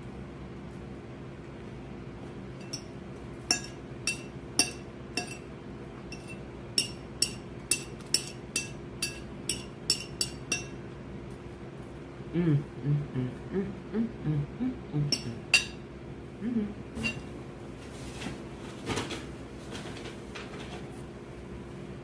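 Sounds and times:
utensil clinking against a dish: 0:02.6 - 0:05.5, 0:06.1 - 0:10.8, 0:15.1 - 0:15.8.

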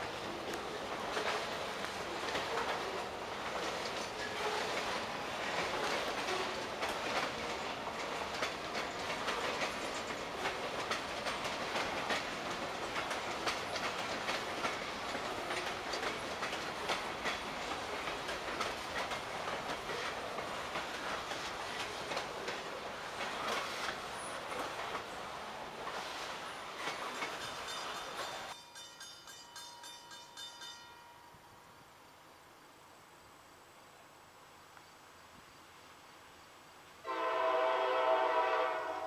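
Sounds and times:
train wheels clicking over rail joints: 0:00.0 - 0:30.9.

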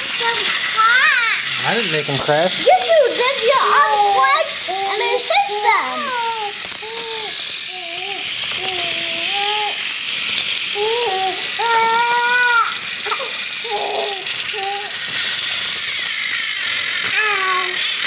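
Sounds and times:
toy train whirring rattle: 0:00.0 - 0:18.0
child making sing-song sounds: 0:00.2 - 0:01.4, 0:02.7 - 0:06.6, 0:10.8 - 0:13.2, 0:17.1 - 0:17.8.

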